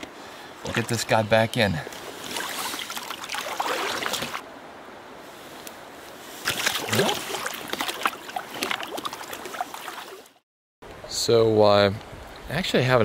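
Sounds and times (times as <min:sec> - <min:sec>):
river current rushing: 0:00.2 - 0:10.4
water splashing: 0:00.6 - 0:01.2, 0:02.1 - 0:04.5, 0:06.4 - 0:10.4.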